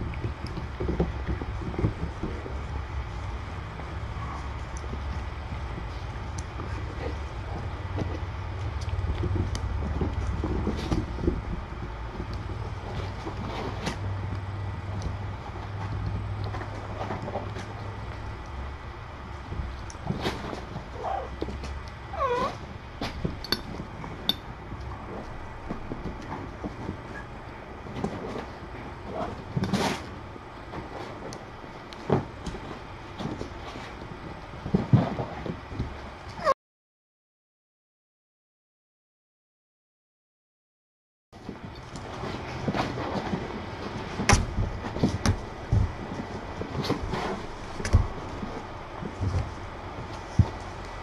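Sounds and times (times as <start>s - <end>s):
cat meowing: 22.1s - 22.6s.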